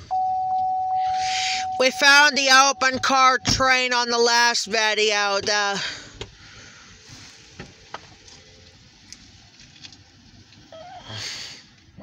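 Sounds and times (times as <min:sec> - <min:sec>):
faint wavering tone: 0:00.0 - 0:03.6
car cabin hiss: 0:05.7 - 0:12.0.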